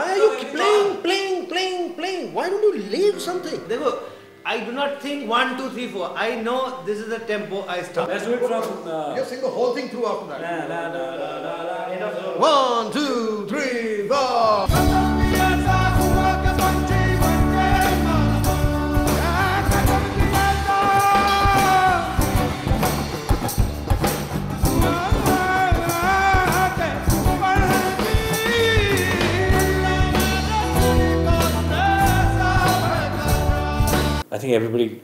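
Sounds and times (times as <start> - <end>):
man singing into a microphone: 14.1 - 22.2, 24.8 - 34.2
percussion: 14.6 - 34.2
low bass notes: 14.7 - 34.2
strummed guitar: 14.7 - 34.2.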